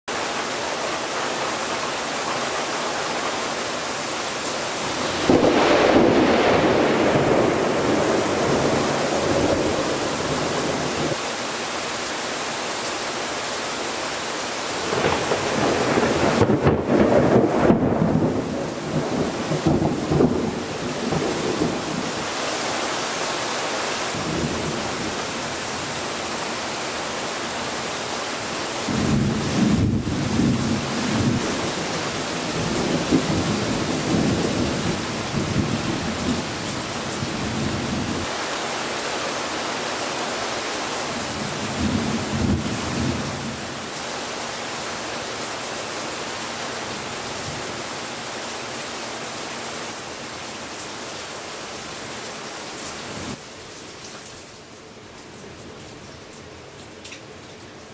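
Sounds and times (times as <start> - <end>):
heavy rain falling: 0.1 - 57.9
thunder rumbling: 4.8 - 11.2, 14.8 - 22.3, 28.9 - 36.6.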